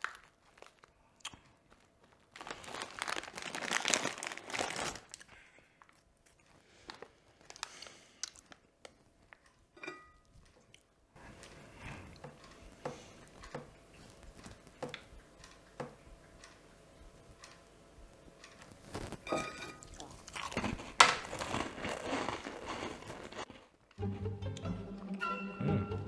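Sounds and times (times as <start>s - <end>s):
light ticks and clicks: 12.2s - 19.3s.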